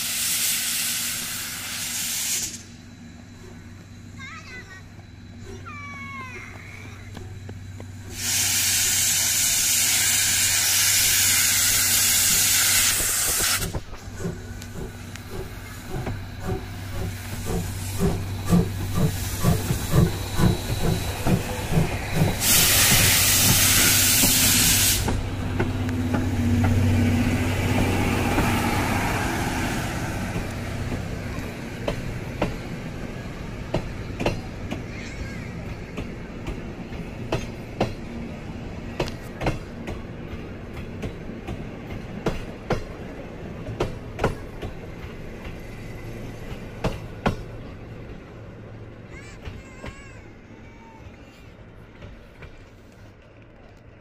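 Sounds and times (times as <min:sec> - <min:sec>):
steam hiss: 0:00.0 - 0:02.9, 0:08.1 - 0:34.7
steam locomotive exhaust chuffs: 0:00.0 - 0:48.7
train coaches rumbling past: 0:00.0 - 0:54.0.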